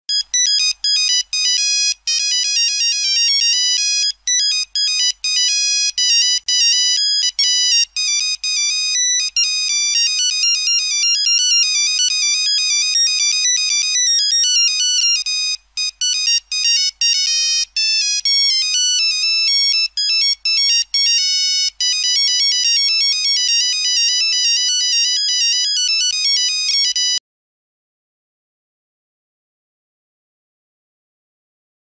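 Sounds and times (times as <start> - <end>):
phone ringtone beeping melody: 0.1 - 27.2.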